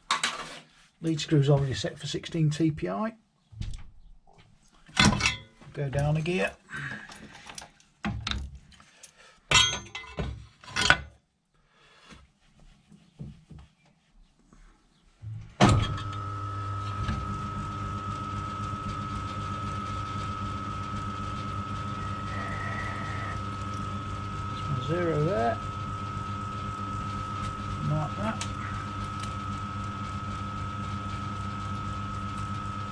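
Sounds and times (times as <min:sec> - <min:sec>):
mechanical clunks and knocks: 0:15.3 - 0:16.1
lathe motor whining: 0:15.9 - 0:32.9.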